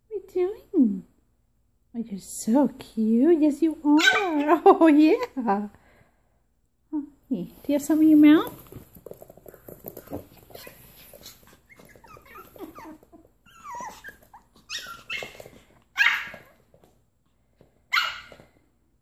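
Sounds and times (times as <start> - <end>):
puppies whining and yipping: 10.5 - 16.6
puppy yaps: 11.7 - 16.6, 17.9 - 18.4.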